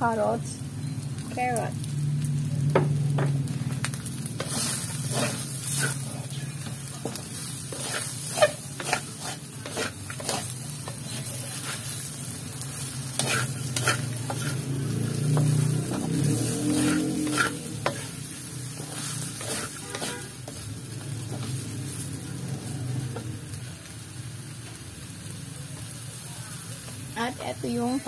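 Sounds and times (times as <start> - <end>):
oil sizzling in a wok: 0.0 - 28.0
wooden spatula scraping a metal wok: 4.2 - 20.7.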